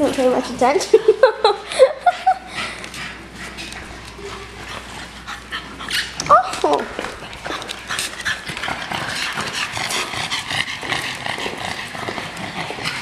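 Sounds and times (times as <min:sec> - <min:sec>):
dog claws clicking on tile: 0:05.8 - 0:13.0.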